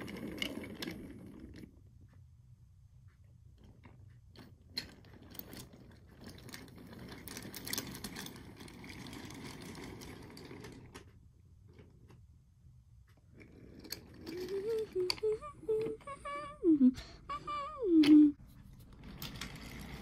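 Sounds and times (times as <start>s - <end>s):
wooden toy trains rattling on track: 0.0s - 1.8s, 3.7s - 12.2s, 13.3s - 16.5s, 18.8s - 20.0s.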